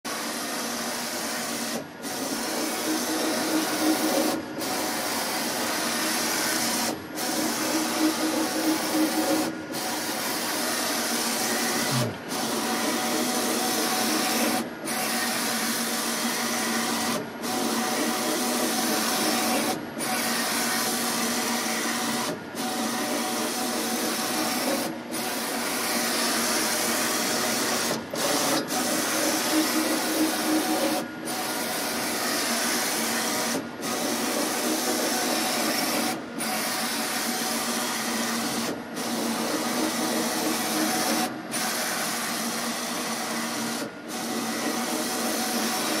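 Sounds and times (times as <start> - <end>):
inkjet printer carriage whirring: 0.2 - 46.0.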